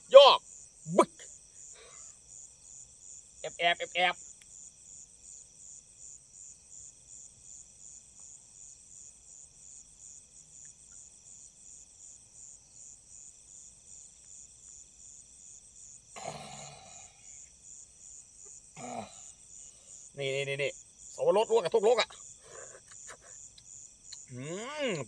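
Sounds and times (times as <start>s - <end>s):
crickets chirping: 0.0s - 25.0s
person vocal sound: 18.8s - 19.2s, 24.3s - 25.0s.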